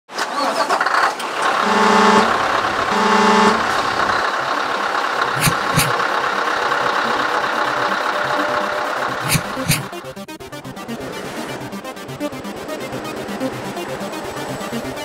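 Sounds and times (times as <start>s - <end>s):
engine hum: 1.2s - 10.2s
truck horn blasts: 1.5s - 4.2s, 5.4s - 6.0s, 7.8s - 9.9s.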